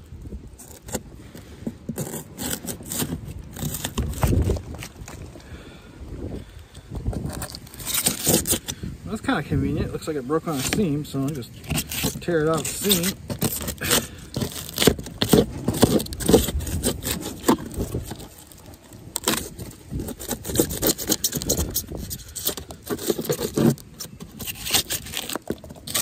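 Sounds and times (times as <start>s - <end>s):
hand saw rasping through wood: 2.0s - 4.2s, 11.6s - 18.0s, 19.2s - 23.8s.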